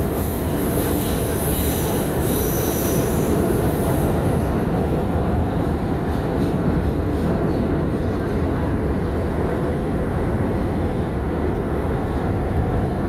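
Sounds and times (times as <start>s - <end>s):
subway train wheels rumbling: 0.0s - 13.0s.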